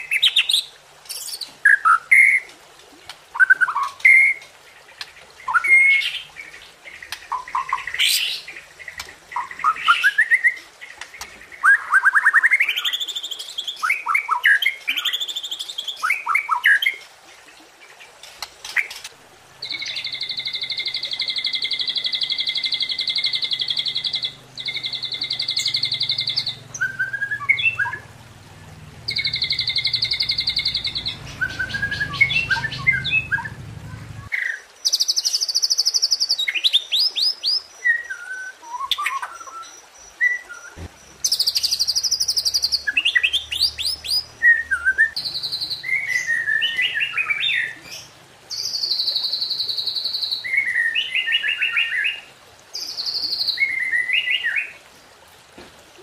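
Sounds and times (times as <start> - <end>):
songbird singing trills: 19.6 - 52.2.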